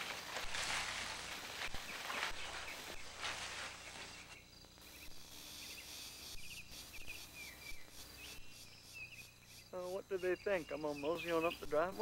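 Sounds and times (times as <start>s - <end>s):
leaves rustling: 0.0s - 4.7s
insect trill: 0.0s - 12.0s
bird chirps: 1.7s - 12.0s.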